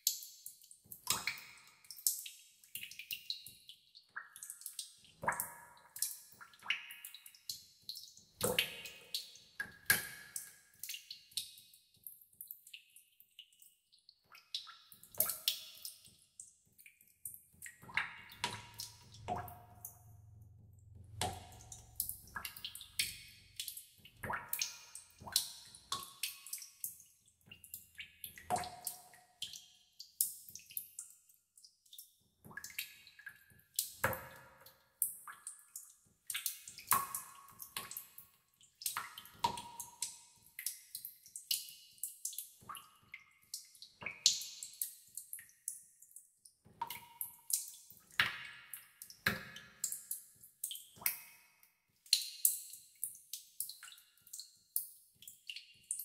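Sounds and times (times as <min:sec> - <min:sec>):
water drops plinking into tub: 0:00.0 - 0:11.4, 0:17.2 - 0:31.0, 0:32.5 - 0:45.8, 0:46.7 - 0:51.4.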